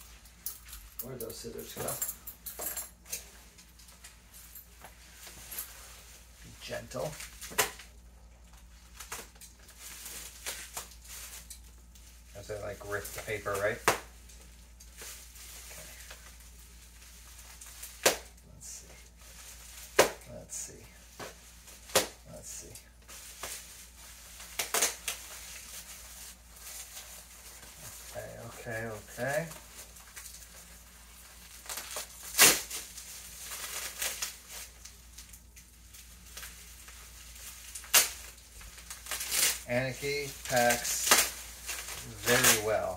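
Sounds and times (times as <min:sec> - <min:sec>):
paper and plastic wrap rustling: 0:03.2 - 0:42.9
sharp crackle: 0:23.0 - 0:42.9.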